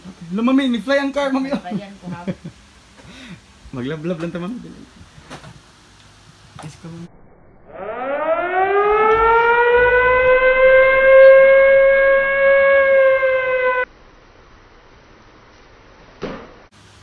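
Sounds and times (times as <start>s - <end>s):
siren wailing: 7.2s - 13.9s.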